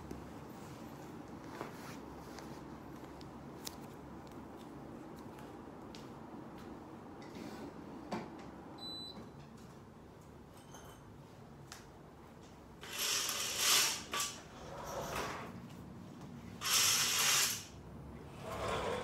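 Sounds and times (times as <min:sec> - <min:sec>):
curtain hooks scraping along rail: 0:12.8 - 0:15.4, 0:16.6 - 0:17.8.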